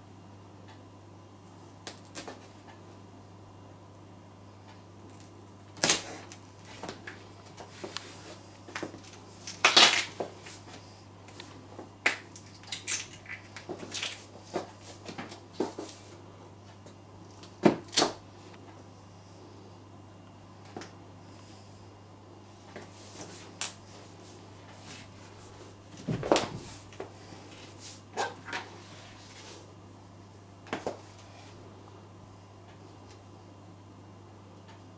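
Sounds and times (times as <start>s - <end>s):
carrots cracking under heels: 8.7s - 10.3s.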